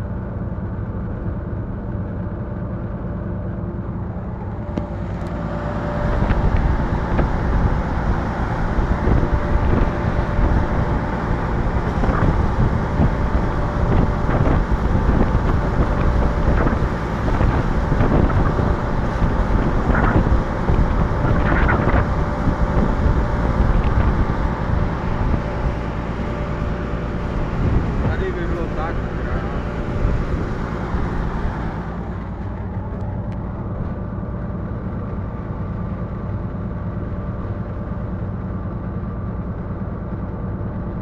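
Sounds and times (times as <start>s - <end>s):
diesel locomotive engine: 0.0s - 41.0s
wind on microphone: 4.4s - 33.8s.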